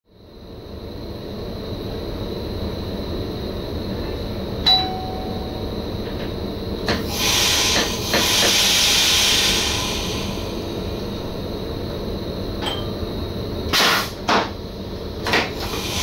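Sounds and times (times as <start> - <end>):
train cab low hum: 0.1 - 16.0
short ding: 4.7 - 5.6
air hissing: 6.8 - 11.4, 15.2 - 16.0.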